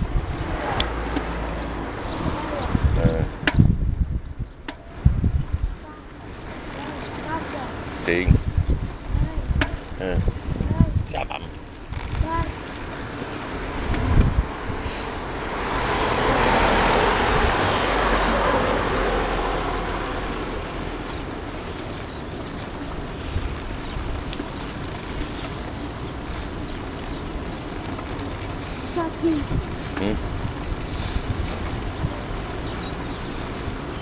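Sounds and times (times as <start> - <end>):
vehicle passing: 0.0 - 3.6, 12.0 - 34.0
traffic noise: 0.0 - 34.0.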